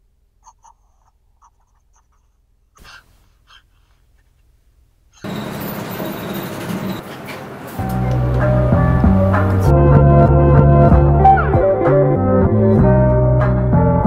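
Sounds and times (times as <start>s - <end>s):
pen nib scratching on paper: 0.4s - 4.4s.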